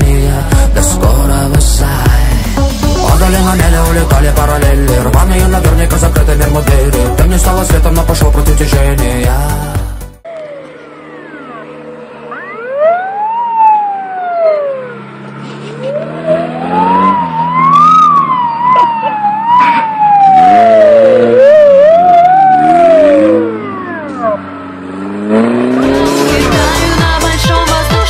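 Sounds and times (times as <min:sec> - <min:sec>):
music with a beat: 0:00.0 - 0:10.2, 0:25.8 - 0:28.0
engine revving with whine: 0:10.2 - 0:27.1.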